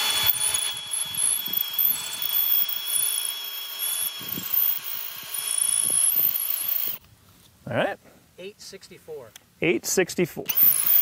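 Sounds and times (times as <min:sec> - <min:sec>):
drill bit grinding into concrete: 0:00.0 - 0:07.0, 0:10.5 - 0:11.0
drill motor whine: 0:00.0 - 0:07.0, 0:10.5 - 0:11.0.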